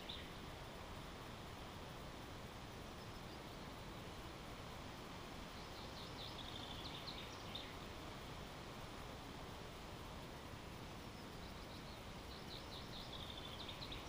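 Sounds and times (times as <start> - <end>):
songbird chirping: 0.0 - 0.7, 2.8 - 4.4, 5.4 - 7.9, 10.9 - 14.0
faint background hiss: 0.0 - 14.0.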